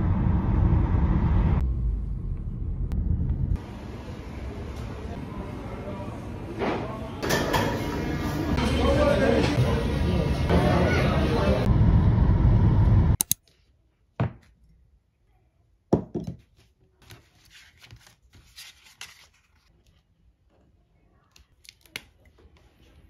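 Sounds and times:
loud noisy passage: 0:00.0 - 0:06.6.

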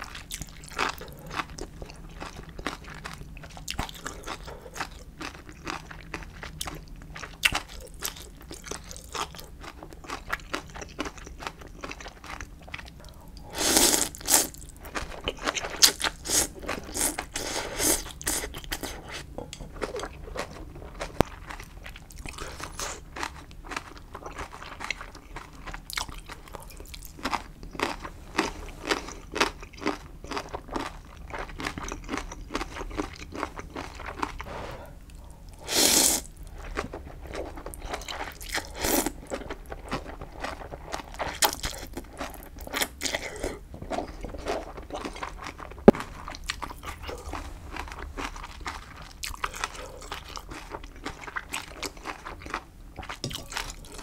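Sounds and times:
wet chewing with mouth clicks: 0:00.0 - 0:54.0
noodle slurping: 0:35.6 - 0:36.3.

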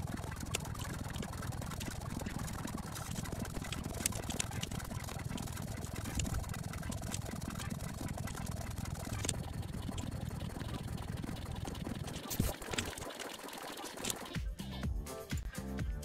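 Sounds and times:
computer keyboard typing clicks: 0:00.0 - 0:09.4.

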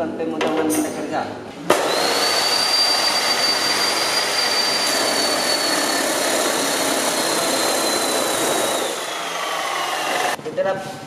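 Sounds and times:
cut-off saw grinding steel: 0:01.9 - 0:10.4.

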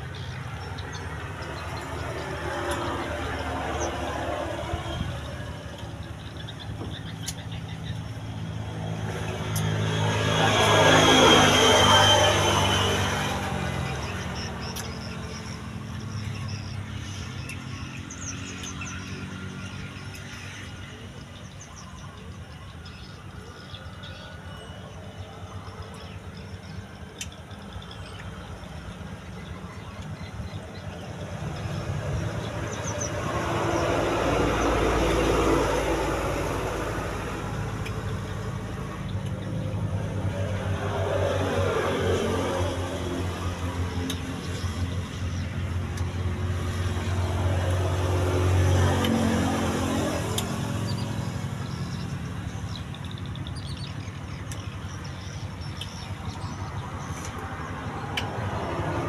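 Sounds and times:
engine running: 0:00.0 - 0:21.2
vehicle engine passing by: 0:00.0 - 0:21.2, 0:30.0 - 0:59.0.

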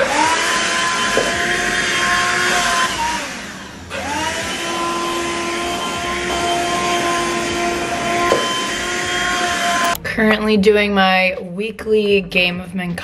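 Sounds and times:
handheld vacuum motor whine: 0:00.0 - 0:10.0.

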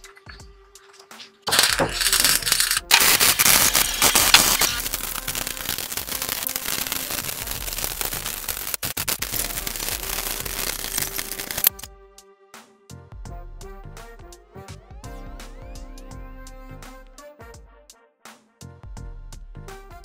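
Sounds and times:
welding arc crackling: 0:01.5 - 0:11.8.

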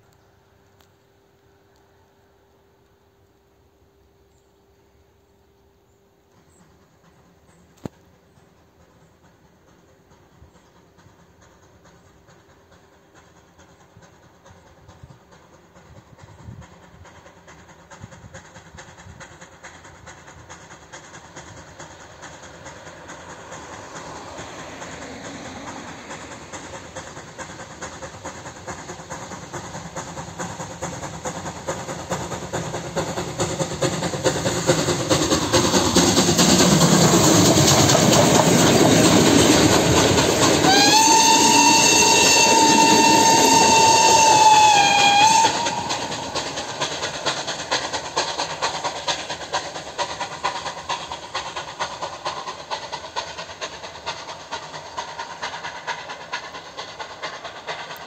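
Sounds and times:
steam train running past: 0:00.0 - 0:58.0
steam whistle blast: 0:40.5 - 0:46.4.

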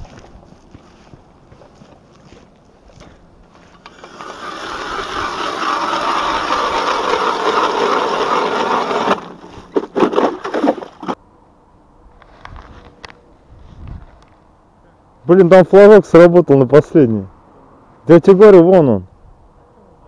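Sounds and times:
ice auger scraping through ice: 0:03.7 - 0:11.2.

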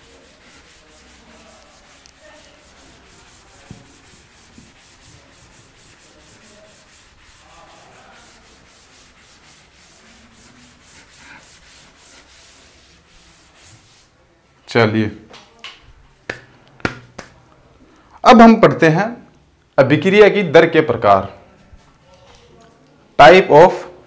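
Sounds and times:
cloth wiping chalkboard: 0:00.0 - 0:14.2.

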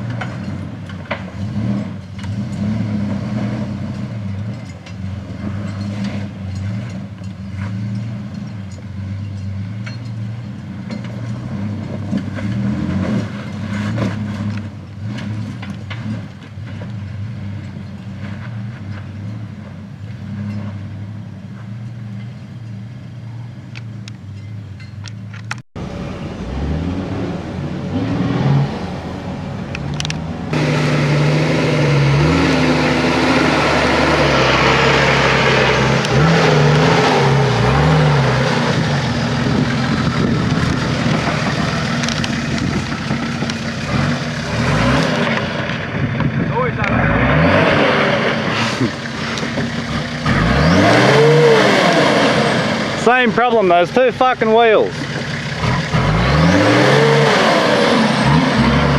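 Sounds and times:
engine revving: 0:00.0 - 0:19.3, 0:25.8 - 0:58.9
engine labouring at low revs: 0:00.0 - 0:24.5, 0:25.1 - 0:58.9.

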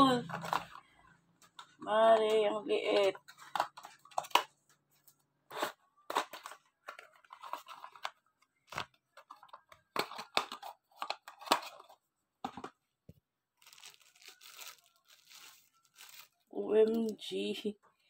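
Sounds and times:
plastic and paper crinkling: 0:01.5 - 0:12.0, 0:13.6 - 0:17.2.

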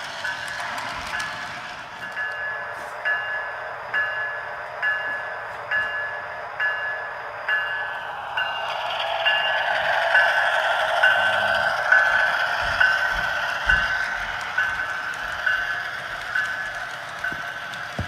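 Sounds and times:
model locomotive bell ringing: 0:00.0 - 0:18.0
model train running noise: 0:00.0 - 0:18.0.

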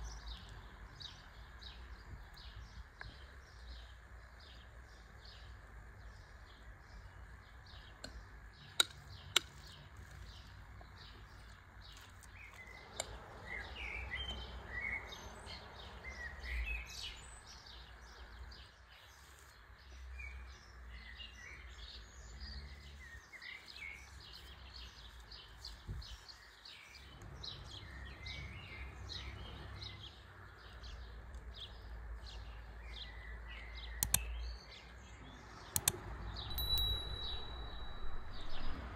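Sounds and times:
small birds chirping: 0:00.0 - 0:38.9
sharp clicks: 0:08.0 - 0:09.8, 0:34.0 - 0:34.4, 0:35.7 - 0:37.5
low steady rumble: 0:36.4 - 0:38.9.

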